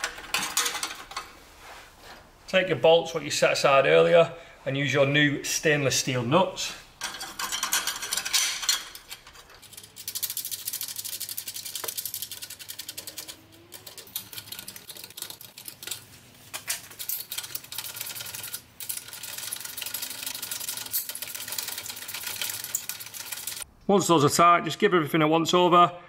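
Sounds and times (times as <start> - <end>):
hand ratchet clicking fast: 9.6 - 15.9, 17.2 - 23.6.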